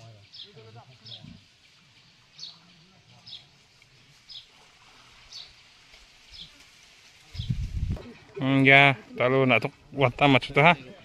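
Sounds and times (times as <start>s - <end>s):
bird chirping: 0.0s - 4.6s.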